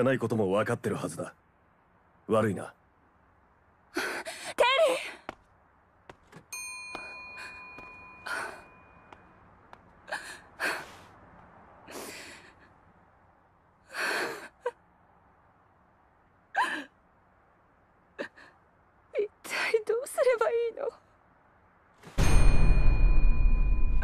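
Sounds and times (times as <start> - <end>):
small bell ringing: 6.5 - 9.1
woman sighing and gasping: 7.4 - 8.8.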